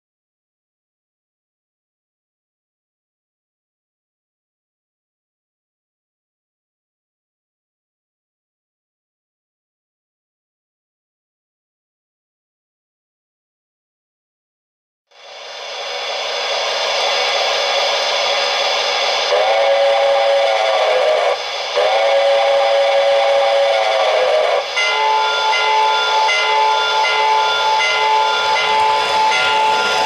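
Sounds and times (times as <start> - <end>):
steam hiss: 15.1 - 30.0
steam whistle blasts: 15.4 - 30.0.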